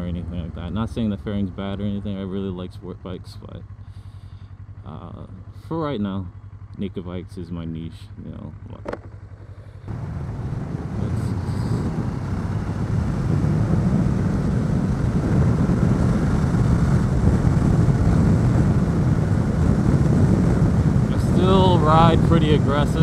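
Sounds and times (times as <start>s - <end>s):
wind noise on helmet microphone: 9.9s - 23.0s.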